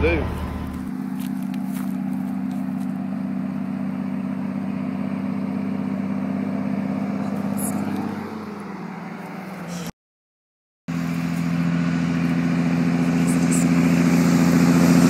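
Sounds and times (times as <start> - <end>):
vehicle engine running: 0.0 - 9.9, 10.9 - 15.0.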